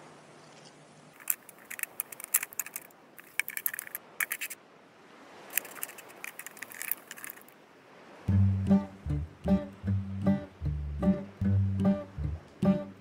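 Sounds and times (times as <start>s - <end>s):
crab scuttling over sand: 1.2s - 4.6s, 5.4s - 7.6s.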